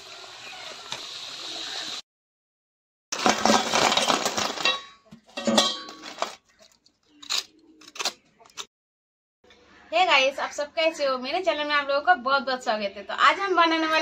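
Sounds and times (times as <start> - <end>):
food frying in hot oil: 0.0 - 2.0
knife clinking on steel plate: 4.7 - 6.0.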